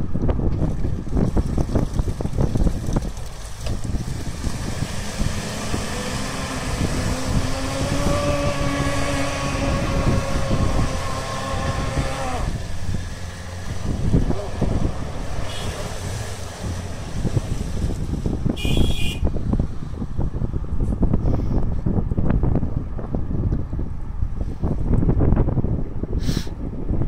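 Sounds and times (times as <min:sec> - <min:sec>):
wind buffeting microphone: 0:00.0 - 0:27.0
engine revving hard: 0:04.2 - 0:17.2.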